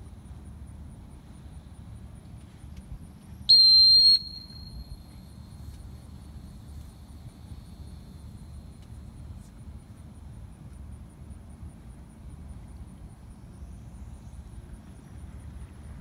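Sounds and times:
loud high whistle blast: 3.5 - 4.9.

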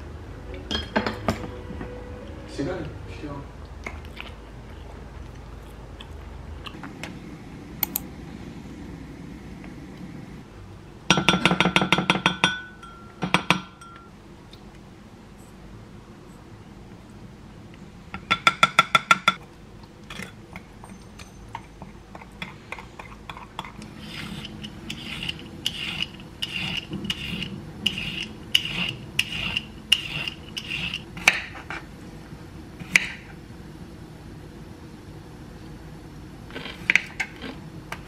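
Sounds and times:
spoon tapping glass cup: 11.1 - 14.1
peeler scraping cucumber skin: 23.9 - 31.6.

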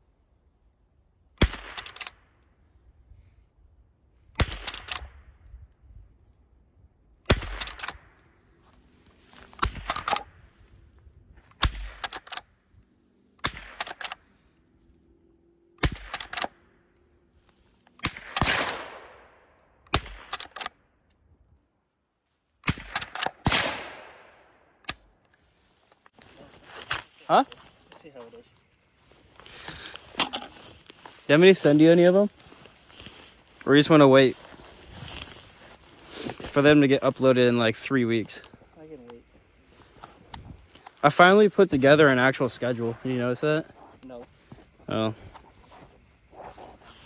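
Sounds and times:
rifle shots: 1.4 - 2.2, 4.4 - 5.2, 7.2 - 8.2, 9.6 - 10.3, 11.5 - 12.5, 13.4 - 14.2, 15.8 - 16.6, 18.0 - 20.8, 22.6 - 25.0
rifle lever clacking: 1.8 - 2.2, 7.4 - 8.0, 9.6 - 10.3, 11.9 - 12.4, 13.7 - 14.2, 15.9 - 16.5, 20.2 - 20.7, 22.9 - 23.4.

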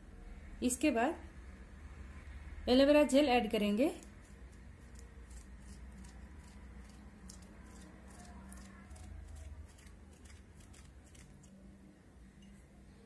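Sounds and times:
low steady hum: 0.0 - 13.0
blade scraping aloe gel: 4.0 - 11.6.

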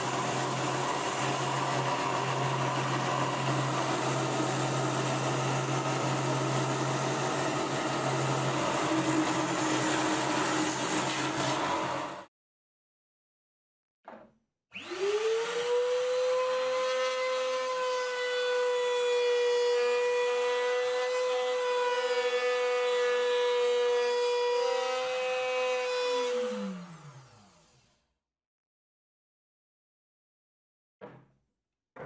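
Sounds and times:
router high whine: 0.0 - 12.2, 14.8 - 27.9.

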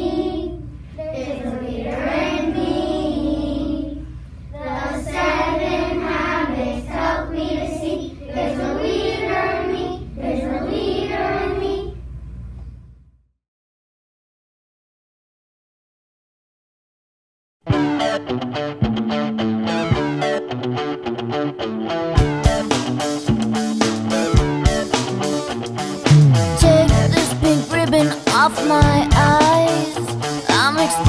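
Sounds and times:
children singing in unison: 0.0 - 0.6, 1.2 - 4.0.

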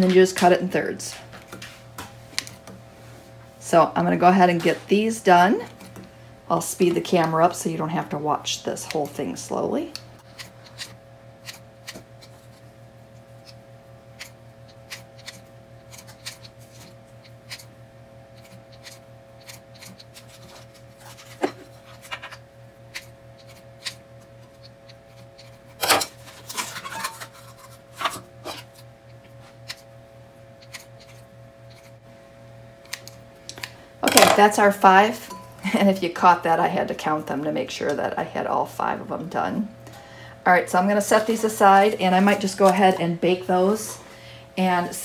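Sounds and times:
faint steady hum: 0.0 - 45.0
scissors snipping dough: 14.2 - 17.7, 18.4 - 20.7, 30.6 - 31.9.

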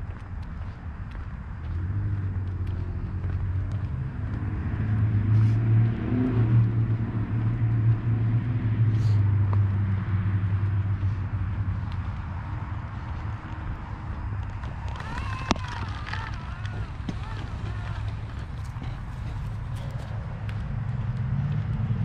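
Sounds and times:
passing motor vehicle rumble: 0.0 - 22.0.

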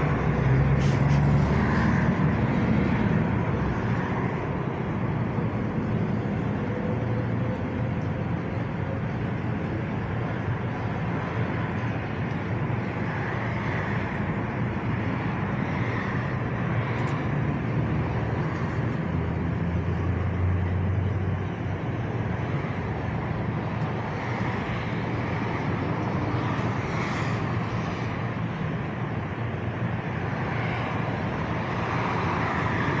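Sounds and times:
vehicle engine rumble: 0.0 - 33.0.

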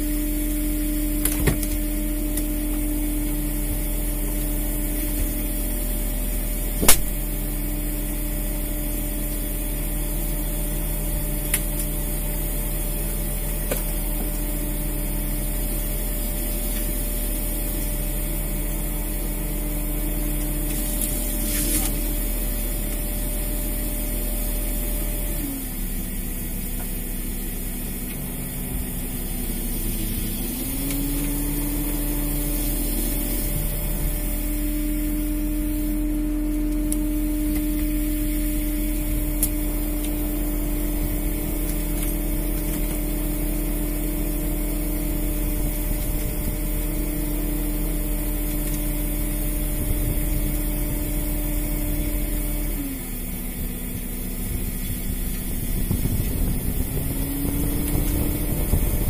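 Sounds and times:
boat engine droning: 0.0 - 59.0
sharp click: 6.8 - 7.2.

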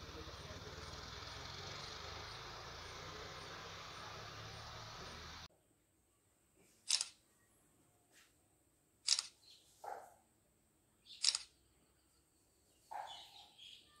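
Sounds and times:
camera shutter clicking: 6.9 - 7.2, 9.1 - 9.4, 11.2 - 11.5.

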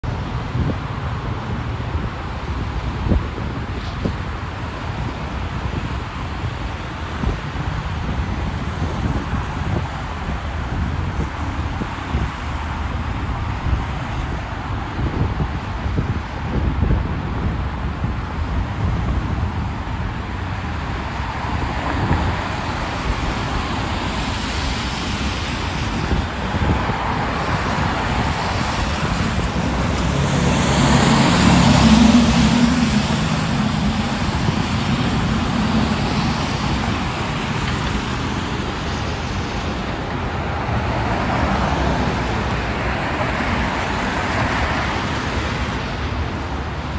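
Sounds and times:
highway traffic rushing: 0.0 - 46.9
vehicle passing with low hum: 27.3 - 39.6.

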